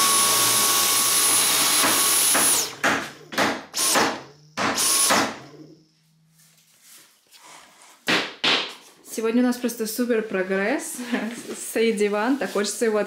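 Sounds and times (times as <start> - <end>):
cordless vacuum whining: 0.0 - 5.7.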